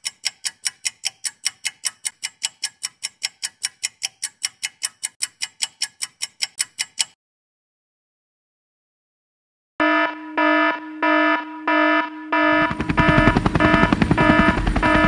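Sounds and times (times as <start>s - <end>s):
film projector clicking: 0.0s - 7.2s.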